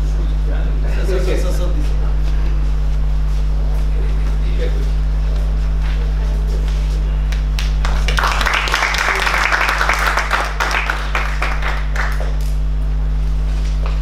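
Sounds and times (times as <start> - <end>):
low electrical hum: 0.0 - 14.0
audience applauding: 7.6 - 12.6.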